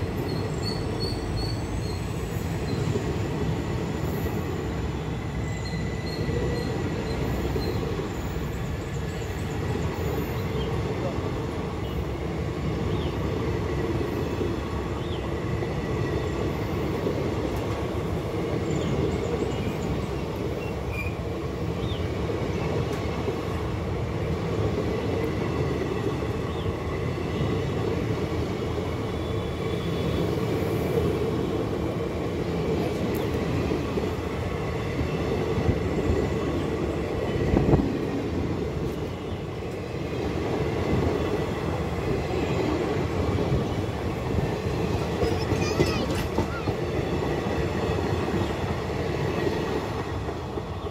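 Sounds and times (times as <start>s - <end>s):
train wheels clattering on rails: 12.6s - 50.9s.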